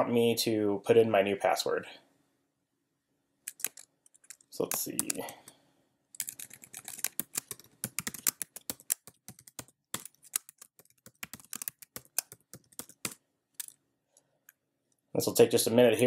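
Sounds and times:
computer keyboard typing: 3.5 - 5.5, 6.2 - 13.8.

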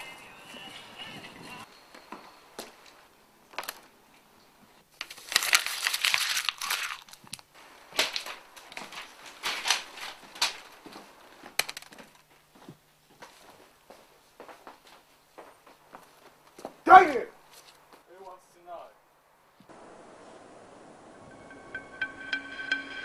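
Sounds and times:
paper ripping and crumpling: 5.0 - 7.4, 8.0 - 10.6.

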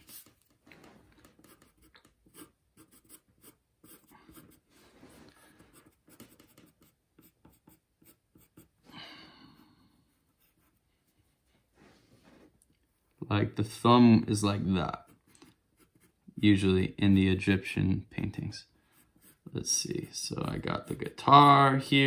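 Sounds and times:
pencil scratching on paper: 1.2 - 8.8, 14.8 - 16.2, 18.9 - 22.0.

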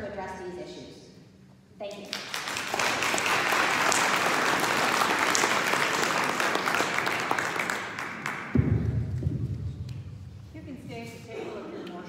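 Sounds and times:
audience applauding: 2.1 - 8.8.

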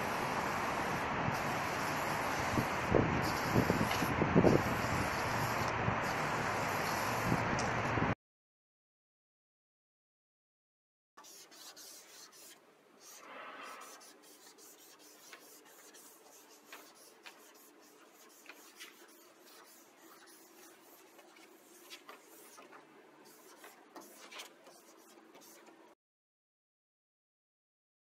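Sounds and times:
marker scratching and squeaking: 11.2 - 25.8.

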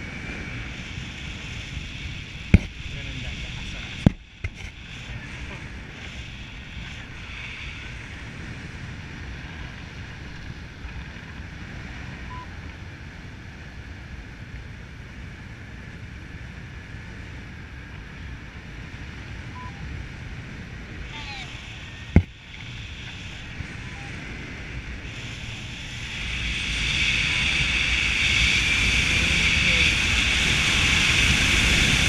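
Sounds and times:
wind rushing over microphone: 0.0 - 32.0
faint beeps: 12.2 - 12.6, 19.5 - 20.0, 23.6 - 24.3.

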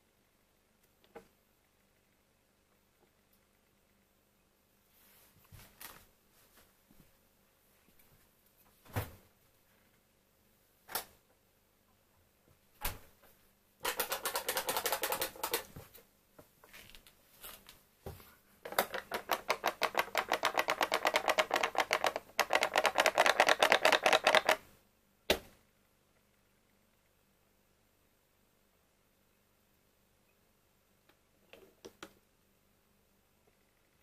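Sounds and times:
rapid even clicking: 13.8 - 15.7, 18.7 - 24.6.

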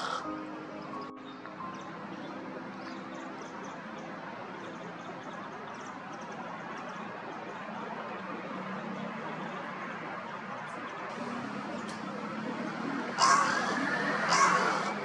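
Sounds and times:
small birds chirping: 0.0 - 9.8
outdoor background noise: 0.0 - 15.0.

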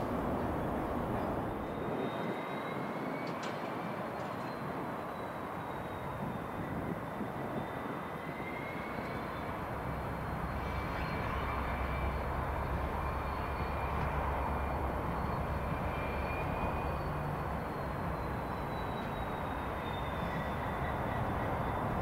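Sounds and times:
locomotive engine low drone: 0.0 - 2.9, 8.2 - 22.0
faint high whine: 5.1 - 22.0.

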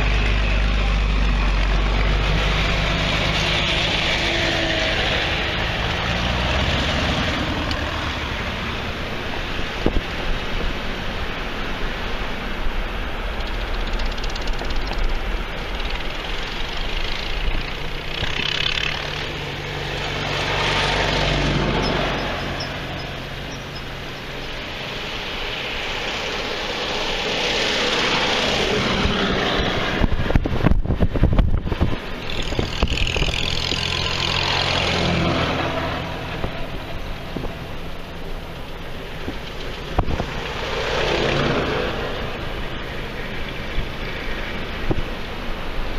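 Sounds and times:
tractor engines passing: 0.0 - 45.9
wind buffeting microphone: 7.1 - 11.4, 28.9 - 34.0, 36.1 - 45.9.

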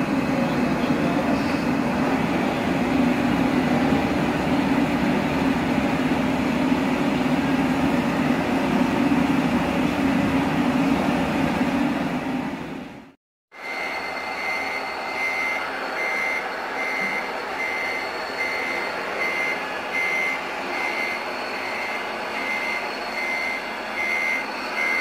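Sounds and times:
electronic engine drone: 13.6 - 25.0.

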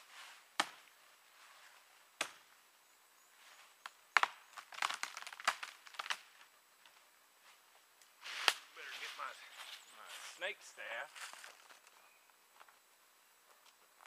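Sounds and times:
wood cracking and splintering: 4.2 - 6.4.

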